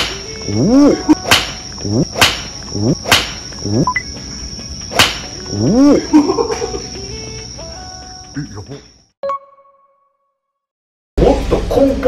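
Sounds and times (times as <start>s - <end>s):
crickets trilling: 0.0s - 9.2s.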